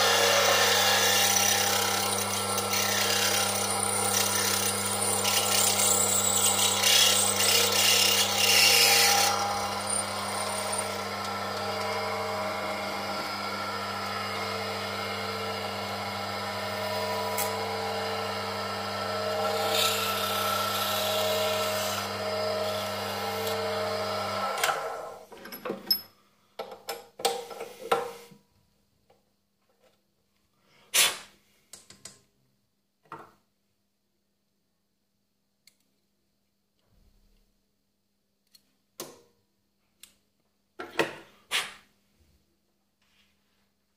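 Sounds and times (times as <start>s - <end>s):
drill bit cutting metal: 0.0s - 15.0s, 15.6s - 24.2s
lathe motor humming: 0.0s - 24.6s.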